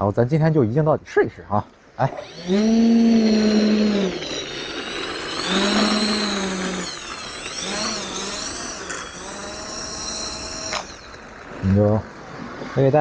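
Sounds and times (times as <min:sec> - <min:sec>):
electric ducted fan whining: 0:02.0 - 0:12.2.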